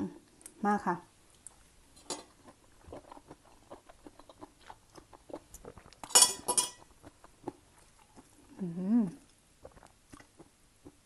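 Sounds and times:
chewing mouth clicks: 0:02.8 - 0:06.1, 0:09.2 - 0:11.0
metal fork clattering on plate: 0:06.1 - 0:06.8.

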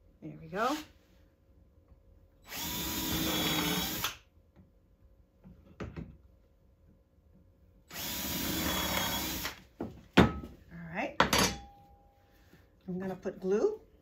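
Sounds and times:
cordless drill boring wood: 0:02.5 - 0:04.2, 0:07.9 - 0:09.6.

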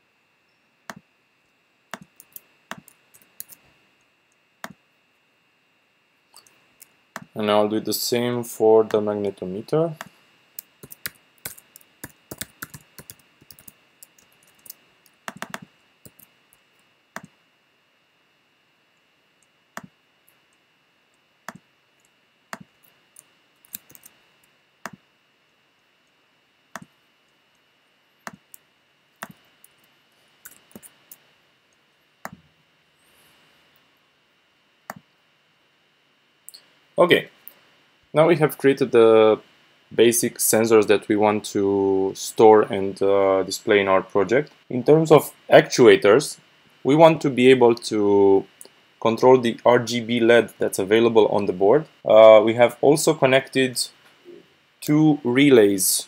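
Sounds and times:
keyboard typing: 0:01.9 - 0:03.6, 0:10.8 - 0:16.3, 0:22.5 - 0:24.2, 0:30.4 - 0:31.0
mouse clicks: 0:01.9 - 0:03.6, 0:06.4 - 0:07.3, 0:10.8 - 0:16.3, 0:17.2 - 0:17.4.

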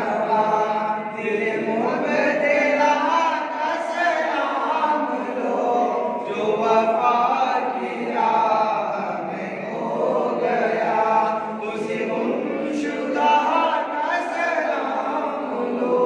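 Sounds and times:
men chanting together: 0:00.0 - 0:16.0.

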